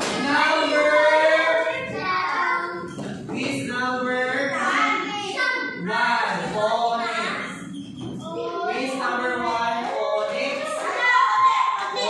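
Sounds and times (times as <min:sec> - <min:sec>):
children singing long tones: 0:10.8 - 0:12.0.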